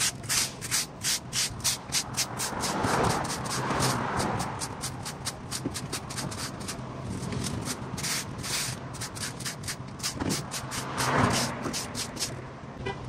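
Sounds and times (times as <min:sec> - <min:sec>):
hand tool scraping pavement: 0:00.0 - 0:12.4
traffic hum: 0:00.0 - 0:13.0.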